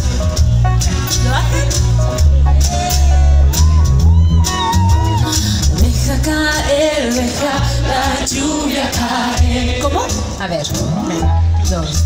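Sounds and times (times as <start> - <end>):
heavy steady bass: 0.0 - 12.0
live pop band playing: 0.0 - 12.0
woman singing lead: 5.0 - 10.4.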